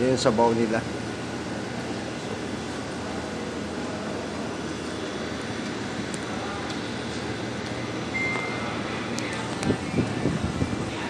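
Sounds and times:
air conditioning hum: 0.0 - 11.0
faint indistinct voices: 2.6 - 11.0.

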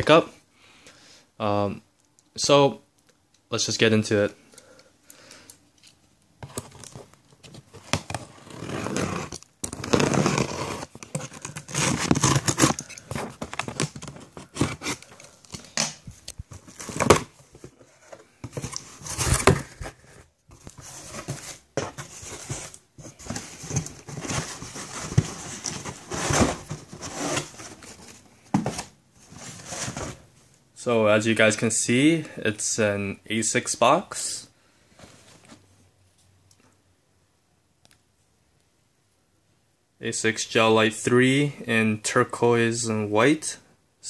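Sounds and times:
cardboard box being torn open: 8.0 - 15.1.

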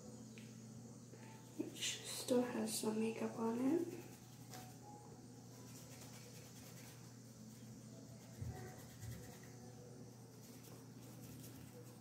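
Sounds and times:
brush rubbing on paper towel: 5.6 - 12.0.

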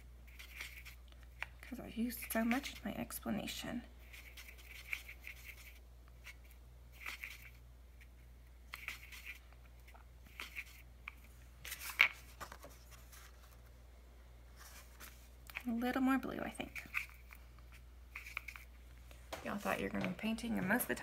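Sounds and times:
paintbrush scrubbing in palette: 4.0 - 7.6.

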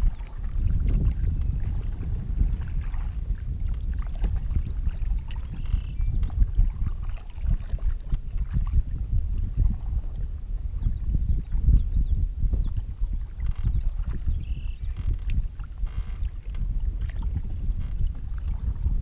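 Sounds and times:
water drips and splashes: 0.0 - 9.0
paddle strokes: 0.0 - 10.2
water moving along hull: 0.0 - 19.0
wind rumble on microphone: 0.0 - 19.0.

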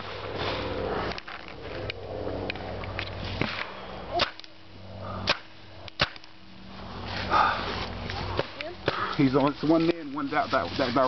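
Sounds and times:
paintball marker shots: 5.2 - 6.4.

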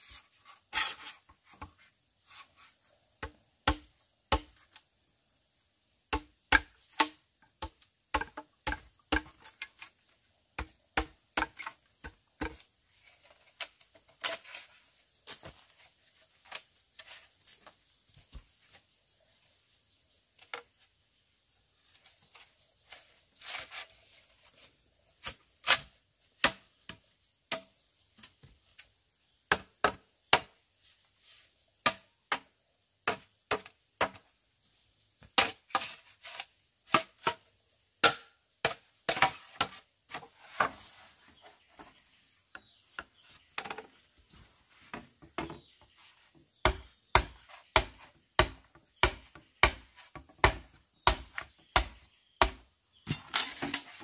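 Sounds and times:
blade chopping wood: 3.2 - 4.6, 6.1 - 9.8, 38.0 - 39.8, 46.6 - 54.0.

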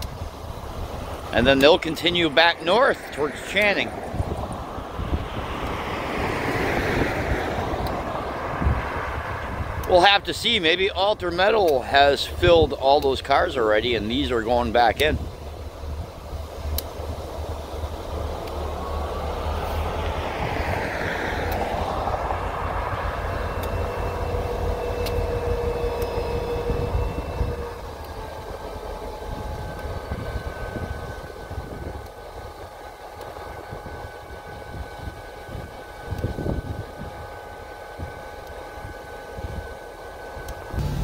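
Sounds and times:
road vehicle passing: 0.0 - 38.1, 40.7 - 41.0
diesel locomotive engine rumble: 0.0 - 41.0.

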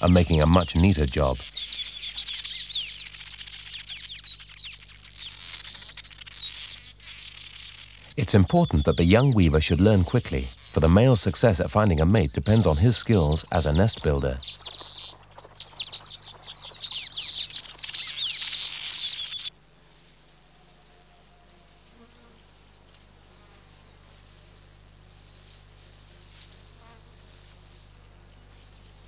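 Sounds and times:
birds chattering: 0.0 - 19.6
insect trilling: 0.0 - 20.4, 23.9 - 29.0.

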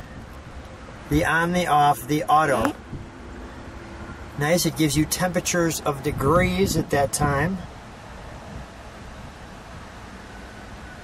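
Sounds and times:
wind rumble on microphone: 2.5 - 4.4, 5.0 - 11.0.

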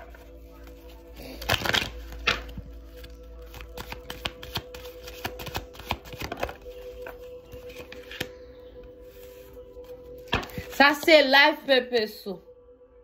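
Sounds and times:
cards being shuffled: 0.0 - 8.3
faint background music: 0.0 - 13.0.

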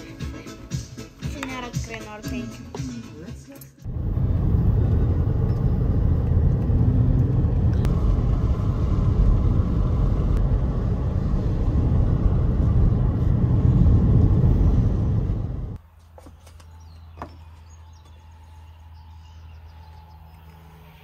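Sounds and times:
car driving rumble: 3.9 - 15.8
tyre and wind noise: 3.9 - 18.1.

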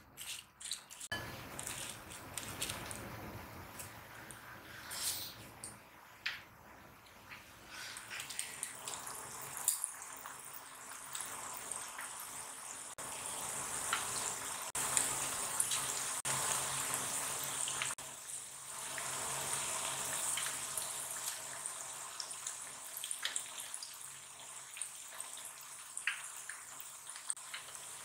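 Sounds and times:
oil sizzling and bubbling: 0.0 - 28.0
small pops in hot oil: 26.0 - 27.7.

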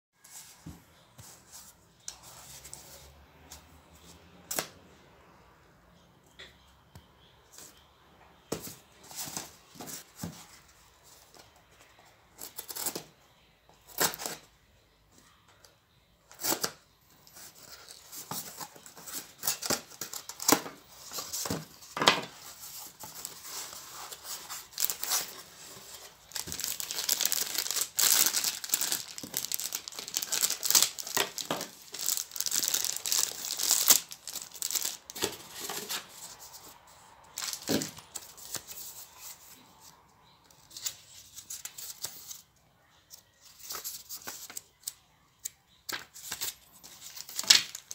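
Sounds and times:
plastic bag crinkling: 24.5 - 35.9.

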